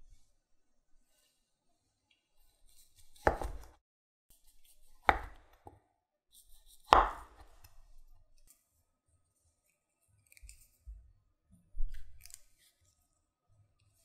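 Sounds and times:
knife knocking on cutting board: 3.3s - 3.7s, 7.0s - 7.4s.

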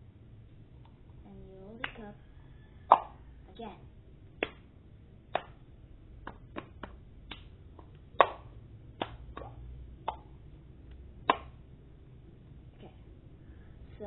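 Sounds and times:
hand claps: 1.8s - 2.0s, 4.4s - 4.7s, 5.3s - 5.6s, 6.2s - 10.2s, 11.2s - 11.6s.

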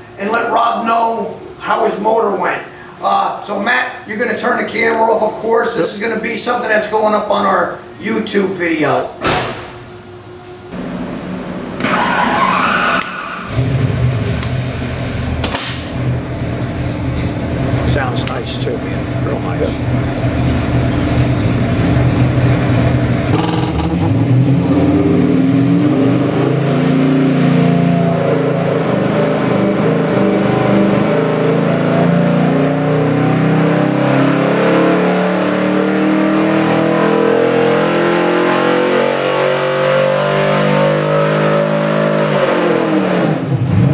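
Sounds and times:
engine revving under load: 10.7s - 43.9s.

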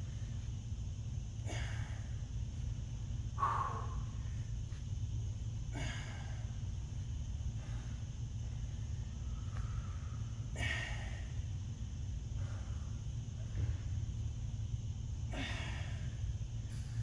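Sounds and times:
steady low hum: 0.0s - 17.0s
man exhaling hard with effort: 1.4s - 2.1s, 3.4s - 4.2s, 5.7s - 6.5s, 15.3s - 16.2s.

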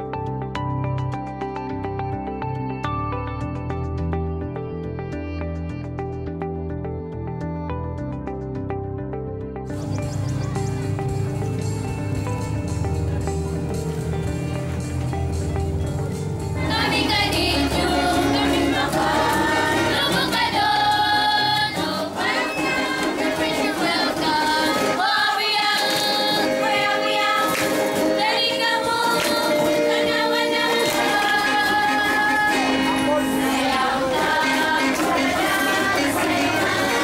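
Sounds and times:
stringed instruments: 9.8s - 37.0s
girls singing together: 16.6s - 37.0s.

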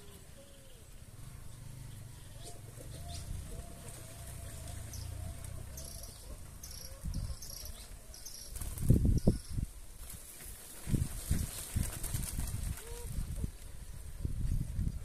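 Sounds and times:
high chirps of birds or insects: 0.0s - 9.7s.

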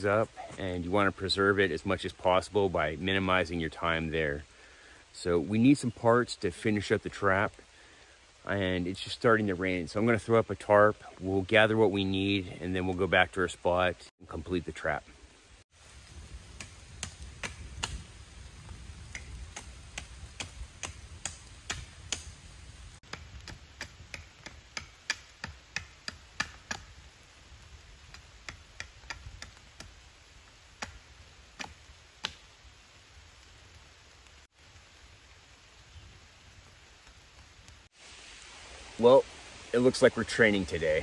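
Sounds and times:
knife chopping wooden stake: 16.6s - 18.0s, 19.1s - 22.3s, 23.0s - 26.9s.

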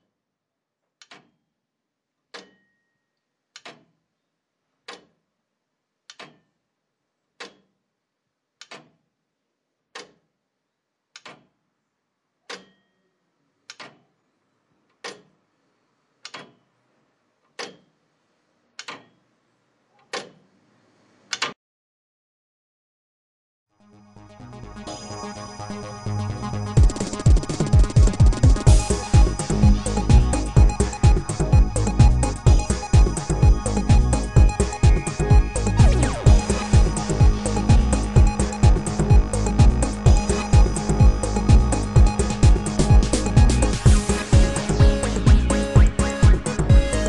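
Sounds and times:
clock ticking: 1.0s - 1.4s, 2.3s - 2.6s, 3.5s - 4.0s, 4.8s - 5.2s, 6.1s - 6.6s, 7.4s - 7.8s, 8.6s - 9.0s, 9.9s - 10.3s, 11.1s - 11.6s, 12.5s - 12.9s, 13.7s - 14.1s, 14.9s - 15.4s, 16.2s - 16.6s, 17.5s - 18.0s, 18.8s - 19.2s, 20.0s - 20.4s, 26.8s - 47.0s
faint background hiss: 3.0s - 21.4s.

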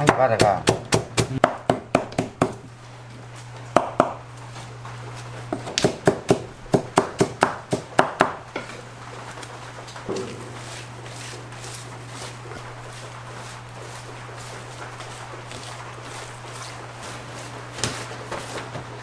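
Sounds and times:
knife chopping on cutting board: 0.0s - 2.6s, 3.8s - 4.2s, 5.5s - 8.4s.

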